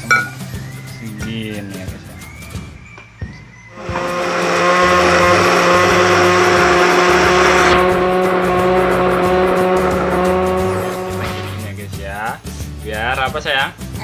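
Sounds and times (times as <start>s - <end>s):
blender grinding ice: 3.8s - 11.6s
blender motor whine: 3.8s - 11.6s.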